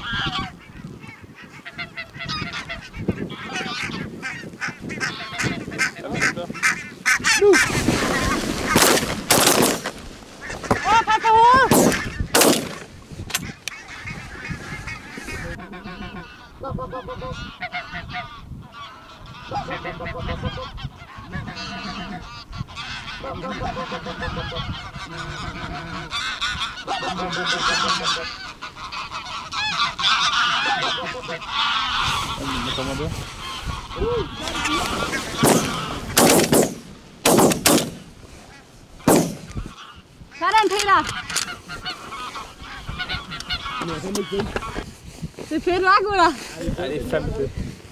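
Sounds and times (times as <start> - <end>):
geese honking: 0.0 - 45.0
shotgun shots: 8.7 - 10.0, 11.7 - 12.9, 35.4 - 38.1, 39.1 - 39.6.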